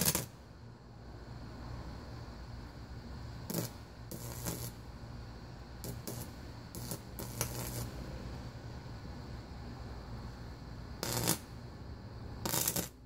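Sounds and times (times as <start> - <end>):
electric arcing crackles: 0.0 - 0.4, 3.4 - 4.9, 5.8 - 8.2, 11.0 - 11.6, 12.4 - 13.0
low transformer hum: 0.0 - 13.0.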